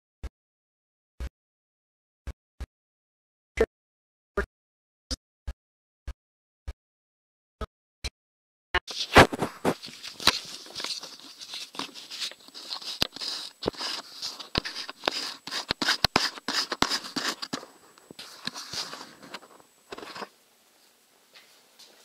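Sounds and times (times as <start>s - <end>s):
camera handling noise: 9.0s - 17.6s.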